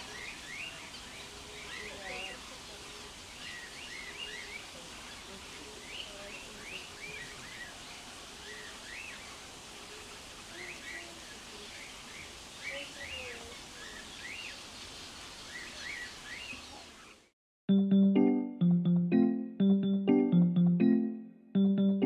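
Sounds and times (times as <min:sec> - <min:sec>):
small birds chirping: 0:00.0 - 0:17.3.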